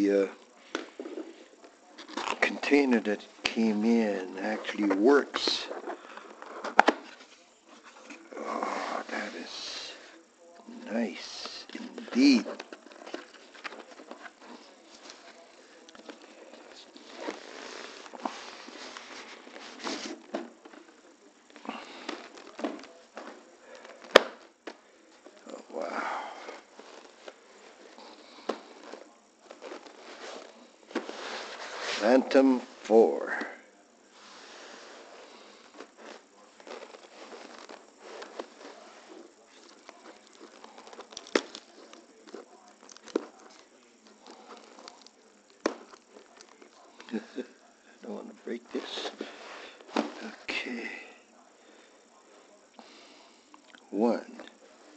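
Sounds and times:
rubbing and scraping on foam: 0:16.9 - 0:20.3, 0:28.3 - 0:32.4.

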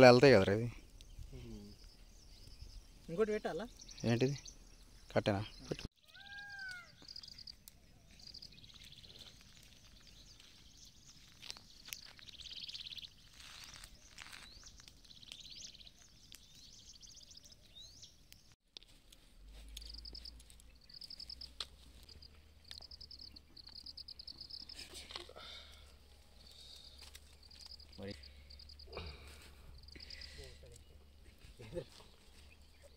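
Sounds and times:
bird chirps: 0:00.0 - 0:18.6, 0:19.5 - 0:25.1, 0:25.7 - 0:32.9
insects trilling in pulsed bursts: 0:19.8 - 0:24.8, 0:25.8 - 0:28.9.

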